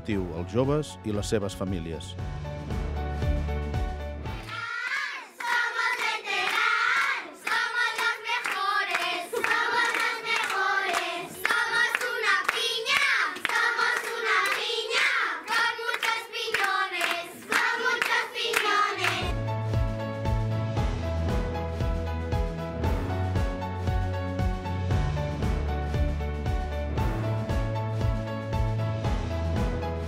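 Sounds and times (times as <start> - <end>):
children singing: 4.4 - 19.3
hands clapping in time: 5.4 - 19.4.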